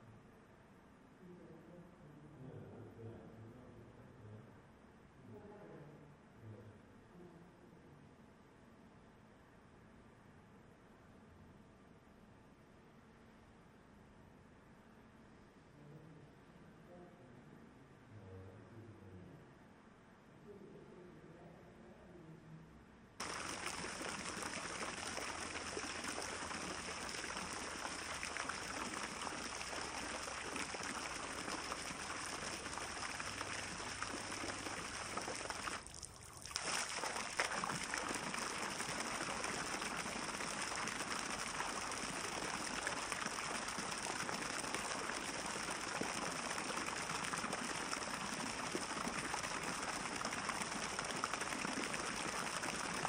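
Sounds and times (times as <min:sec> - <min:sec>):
fountain water trickling and splashing: 0:23.2 - 0:53.0.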